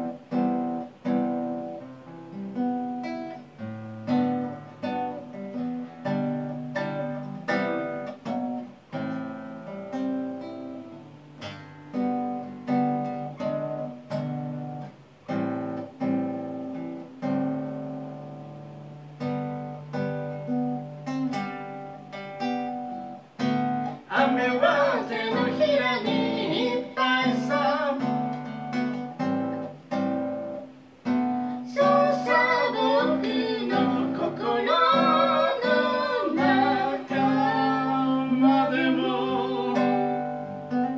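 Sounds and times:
acoustic guitar strumming chords: 0.0s - 40.9s
man singing: 24.1s - 28.2s, 31.7s - 40.2s.

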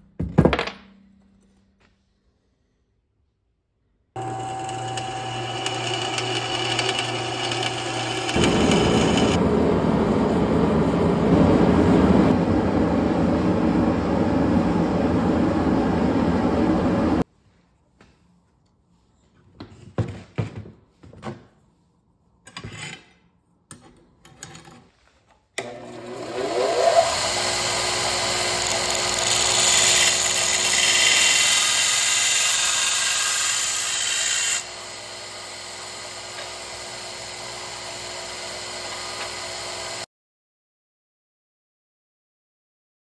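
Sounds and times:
belt grinder running: 4.2s - 9.4s, 25.6s - 40.1s.

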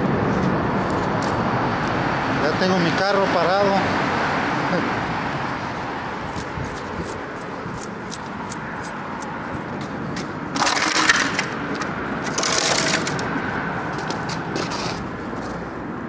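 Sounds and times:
footsteps on gritty concrete: 5.6s - 10.4s.

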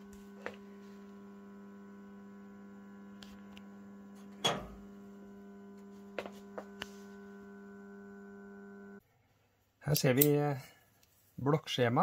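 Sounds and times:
low mains hum: 0.0s - 9.0s.

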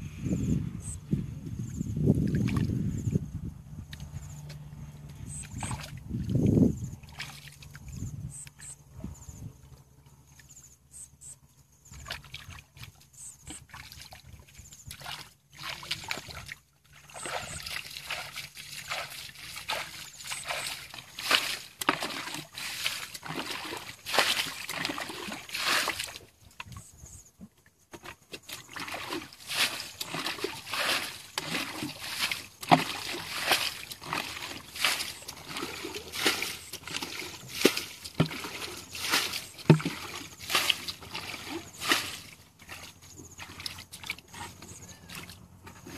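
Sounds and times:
muddy water splashing: 2.0s - 3.0s, 3.8s - 10.6s, 11.3s - 45.9s
feet moving through water: 2.1s - 2.8s, 3.8s - 8.8s, 11.9s - 27.0s, 28.0s - 45.9s
bucket pouring water: 14.9s - 26.3s, 28.0s - 45.9s.

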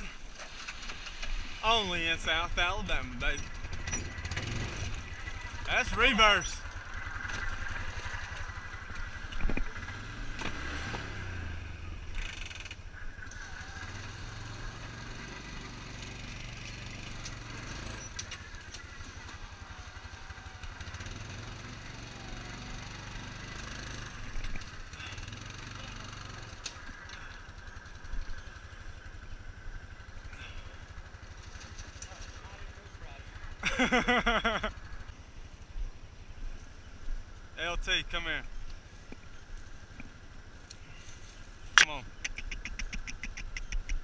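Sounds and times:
single-cylinder engine revving: 0.0s - 35.1s.

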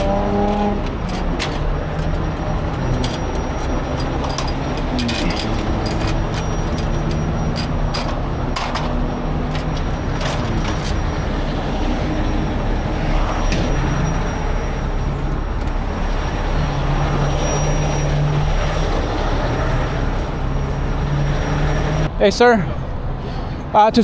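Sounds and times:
metal gear clicks and clanks: 0.0s - 11.1s
diesel trucks idling: 0.0s - 21.8s.

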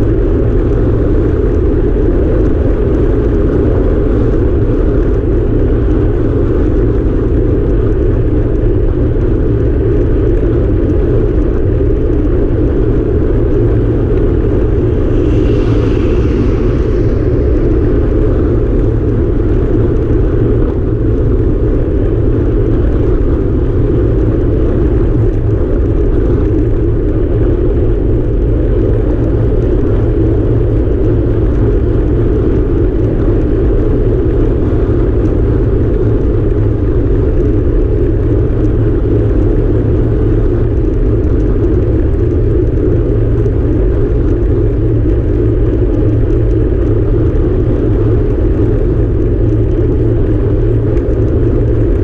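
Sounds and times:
road rumble: 0.0s - 52.0s
wind rush: 0.0s - 52.0s
truck passing: 13.4s - 20.6s.

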